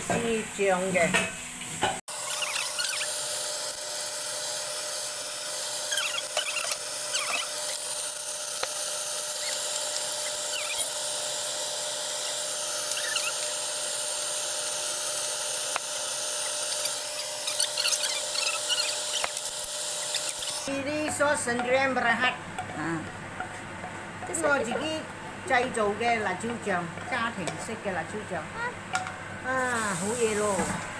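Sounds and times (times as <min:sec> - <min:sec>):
sauce sizzling in hot oil: 0:01.3 - 0:20.7.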